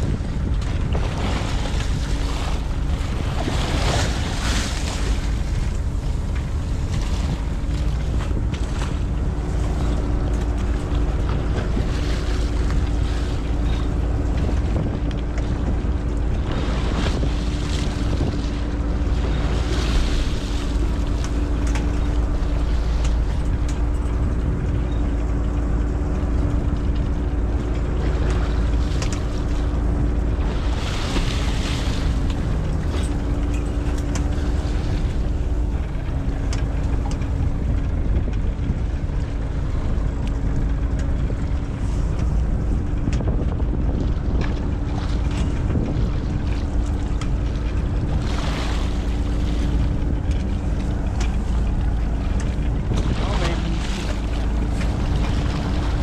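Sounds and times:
boat engine rumbling: 0:00.0 - 0:56.0
waves splashing against hull: 0:00.0 - 0:56.0
wind on microphone: 0:00.0 - 0:56.0.

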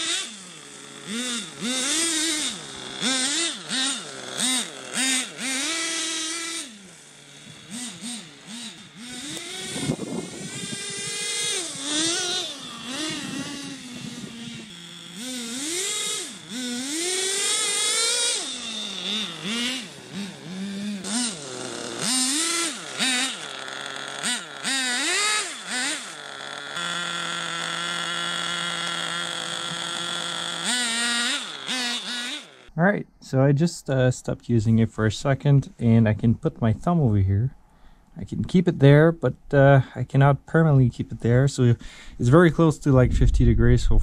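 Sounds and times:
small two-stroke engine revving: 0:00.0 - 0:32.8.

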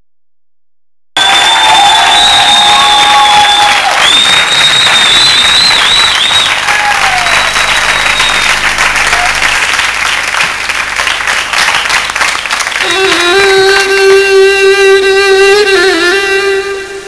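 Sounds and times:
shrill whistling: 0:01.2 - 0:09.7
audience applauding and cheering: 0:01.2 - 0:14.2.

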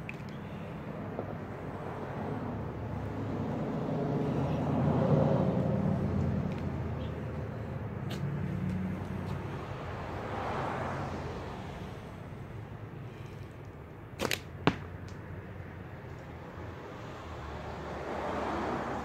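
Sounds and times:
road traffic rumble: 0:00.0 - 0:19.0
car passing by: 0:01.0 - 0:07.4, 0:08.0 - 0:12.3, 0:16.6 - 0:19.0.

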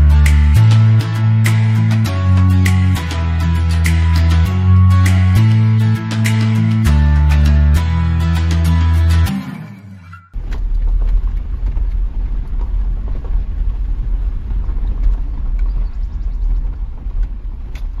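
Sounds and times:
guitar music: 0:00.0 - 0:10.4
car rumble from inside cabin: 0:10.4 - 0:18.0.

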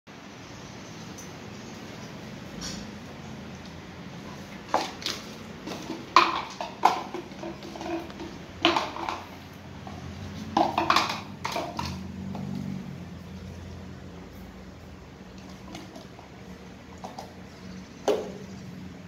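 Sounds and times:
plastic cup clattering on tiles: 0:04.6 - 0:12.7, 0:15.4 - 0:16.2, 0:17.0 - 0:17.4.

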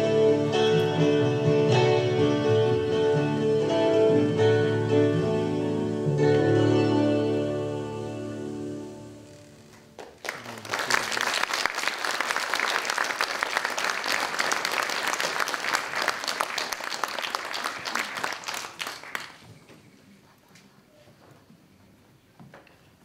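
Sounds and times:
audience applauding: 0:09.7 - 0:19.5.

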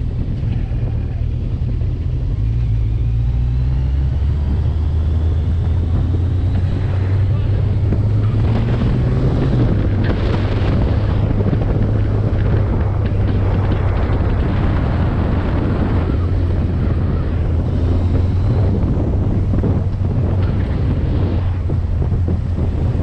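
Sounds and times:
vehicle engine droning: 0:00.0 - 0:23.0
wind buffeting microphone: 0:00.0 - 0:23.0.

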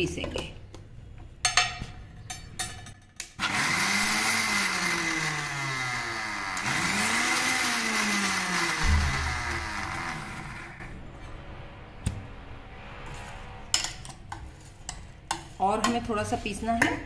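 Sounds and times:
mixer grinder motor grinding: 0:03.4 - 0:10.9.

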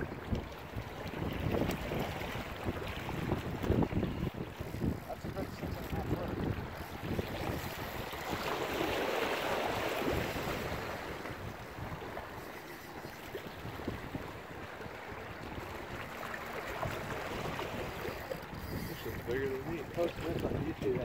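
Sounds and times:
wind on microphone: 0:00.0 - 0:21.0.

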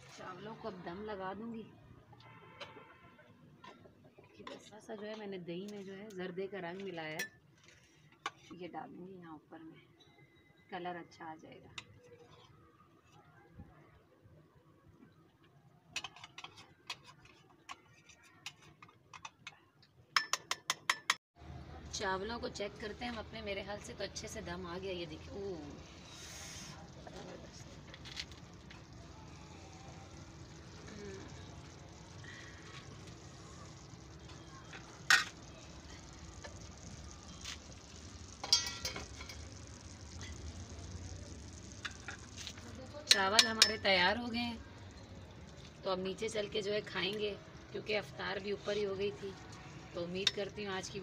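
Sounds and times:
pot sizzling over wood fire: 0:00.0 - 0:01.6, 0:21.4 - 0:51.0
utensil clattering against pot: 0:38.4 - 0:39.5, 0:43.0 - 0:43.9.

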